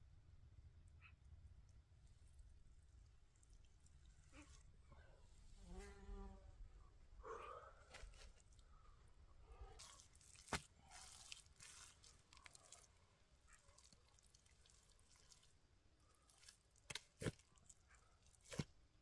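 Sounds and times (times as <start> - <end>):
wet mud squelching: 9.6 - 18.8
mud slapping into mold: 9.8 - 12.7, 16.4 - 17.4.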